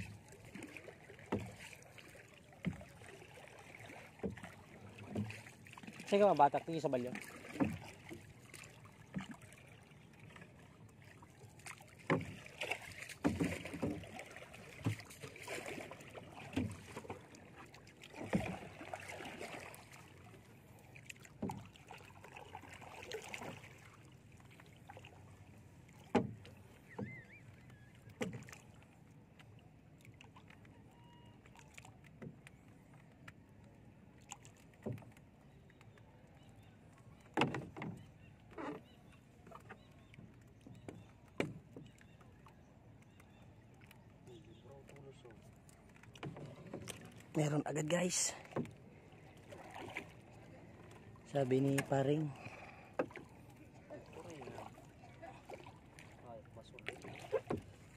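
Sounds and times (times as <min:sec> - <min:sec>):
paddle strokes splashing water: 0:00.0 - 0:57.9
wood knocking against hull: 0:01.2 - 0:01.6, 0:02.6 - 0:02.9, 0:04.1 - 0:06.0, 0:07.2 - 0:08.4, 0:12.0 - 0:18.8, 0:21.2 - 0:21.8, 0:26.0 - 0:27.5, 0:37.2 - 0:42.1, 0:46.1 - 0:47.3, 0:51.6 - 0:53.4, 0:56.9 - 0:57.8.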